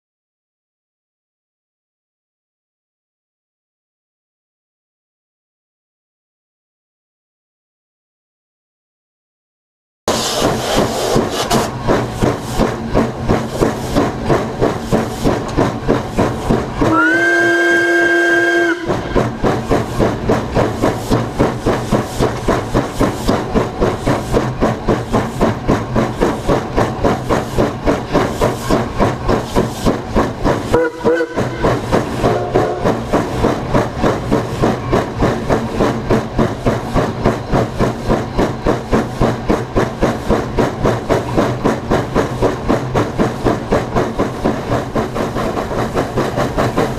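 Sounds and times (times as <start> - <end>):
steam locomotive exhaust chuffs: 10.1 - 46.9
steam whistle: 16.9 - 19.2, 30.7 - 31.6, 32.2 - 32.9.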